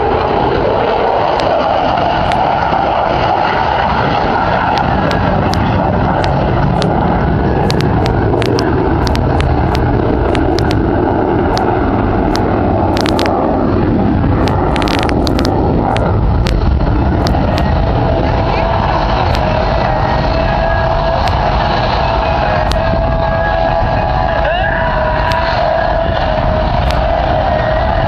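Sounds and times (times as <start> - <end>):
distant jet flying: 0.0 - 28.0
sharp clicks and crackles: 1.0 - 3.9, 4.6 - 20.4, 21.1 - 22.0, 22.6 - 22.9, 25.2 - 27.5.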